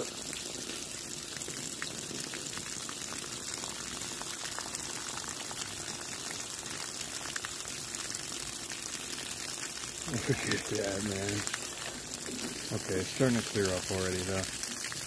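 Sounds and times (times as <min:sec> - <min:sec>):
hose water splashing on ground: 0:00.0 - 0:15.0.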